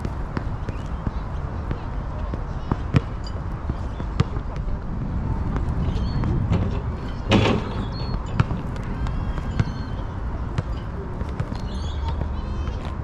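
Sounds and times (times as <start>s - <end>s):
roller skate wheels rumbling: 3.8s - 10.6s.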